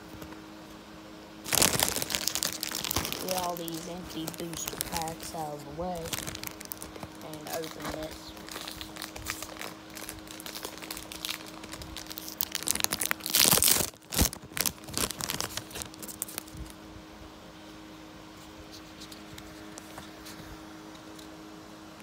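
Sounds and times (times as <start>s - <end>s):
foil pack ripping open: 1.4s - 16.8s
foil wrappers crinkling: 1.4s - 16.8s.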